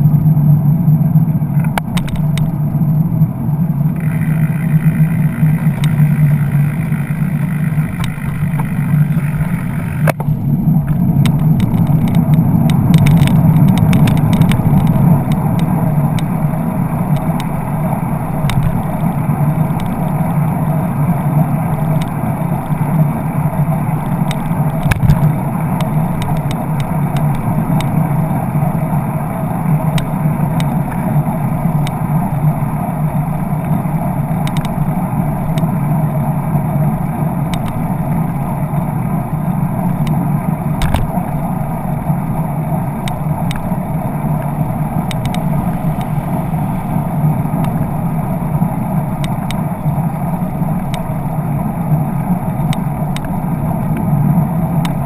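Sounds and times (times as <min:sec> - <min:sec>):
bicycle road rumble: 0:00.0 - 0:55.0
wind on camera: 0:00.0 - 0:55.0.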